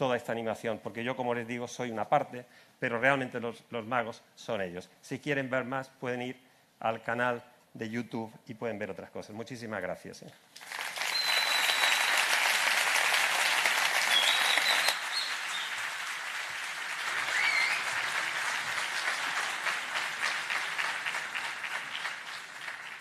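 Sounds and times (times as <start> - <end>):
audience applauding: 10.6 - 23.0.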